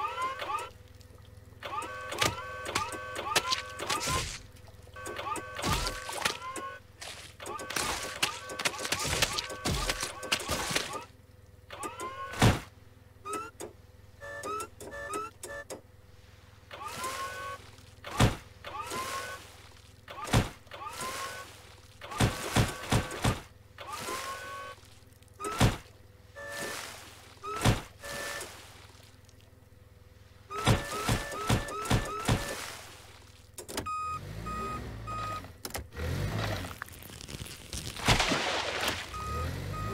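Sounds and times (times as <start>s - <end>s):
forklift motor whining: 0.0s - 0.8s, 1.5s - 16.0s, 16.7s - 28.7s, 30.4s - 32.7s, 33.6s - 37.6s, 39.0s - 39.9s
beeps: 14.2s - 15.8s, 30.5s - 32.6s, 33.8s - 35.5s, 39.1s - 39.9s.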